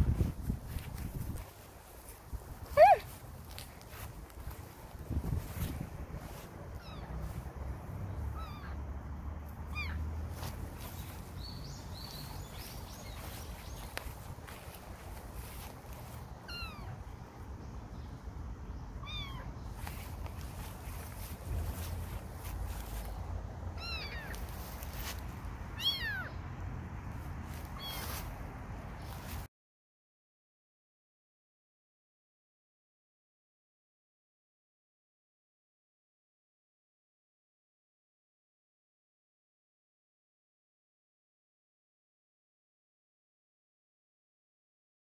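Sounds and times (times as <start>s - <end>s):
rustling in grass: 0.0s - 8.6s, 9.4s - 17.4s, 19.3s - 26.4s, 27.0s - 29.5s
kitten mewing: 2.6s - 3.2s, 19.0s - 19.5s, 23.8s - 24.4s, 25.8s - 26.3s
kitten meowing: 6.8s - 7.2s, 8.3s - 8.8s, 9.7s - 10.0s, 16.4s - 17.0s, 19.0s - 19.5s, 23.8s - 24.5s, 25.8s - 26.4s, 27.8s - 28.2s.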